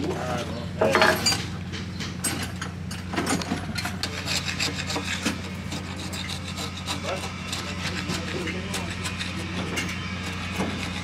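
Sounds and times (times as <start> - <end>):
steady low hum: 0.0 - 11.0
chisel scraping wood: 3.8 - 11.0.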